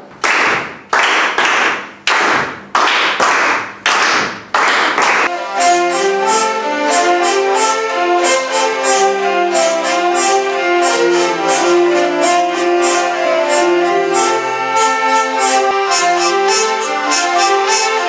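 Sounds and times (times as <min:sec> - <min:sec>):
people clapping in rhythm: 0:00.0 - 0:05.4
hurdy-gurdies playing a tune: 0:05.2 - 0:18.0.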